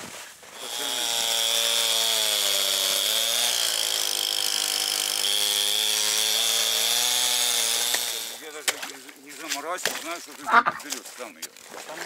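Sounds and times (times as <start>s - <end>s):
small petrol engine running hard: 0.6s - 8.4s.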